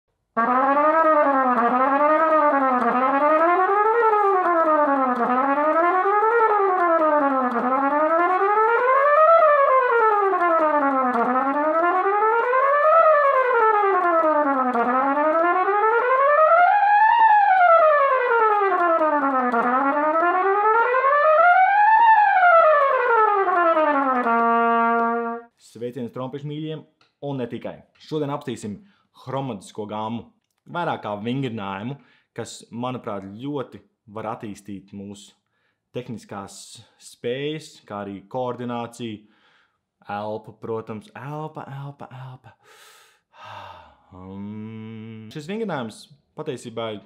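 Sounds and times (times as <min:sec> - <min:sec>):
trumpet playing chromatic scales: 0:00.3 - 0:25.6.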